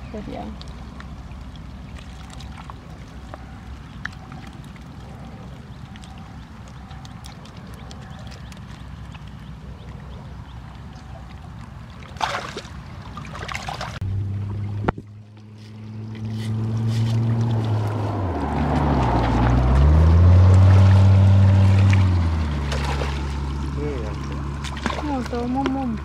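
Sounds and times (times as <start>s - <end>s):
water sloshing: 0.0s - 26.0s
small boat engine running: 19.2s - 26.0s.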